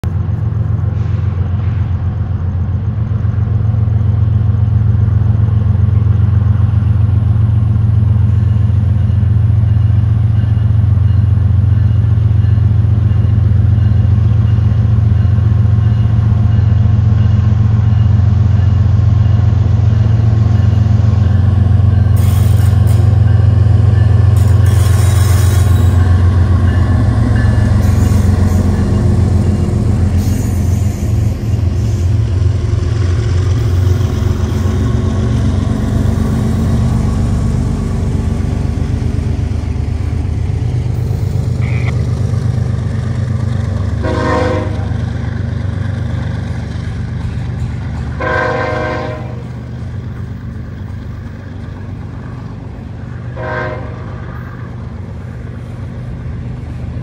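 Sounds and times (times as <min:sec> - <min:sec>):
diesel locomotive engines droning: 0:00.0 - 0:57.0
wheels hissing on rail: 0:18.8 - 0:57.0.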